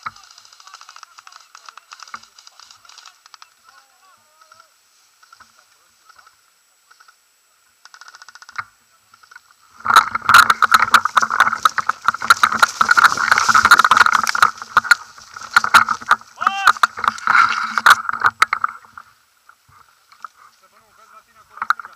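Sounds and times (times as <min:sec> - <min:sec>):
dry grass rustling: 0:00.0 - 0:21.9
rapid clicking rattle: 0:07.8 - 0:18.8.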